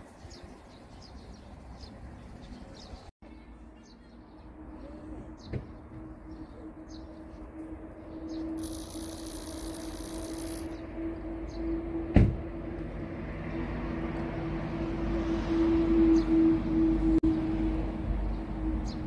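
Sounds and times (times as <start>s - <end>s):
engine hum: 4.4s - 19.0s
small birds chirping: 8.3s - 10.8s.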